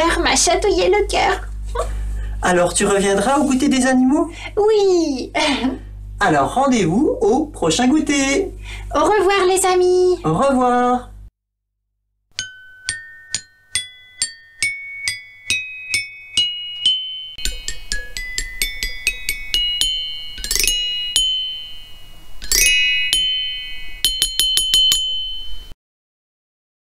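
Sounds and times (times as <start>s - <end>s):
bell-like jingle notes: 12.4s - 25.8s.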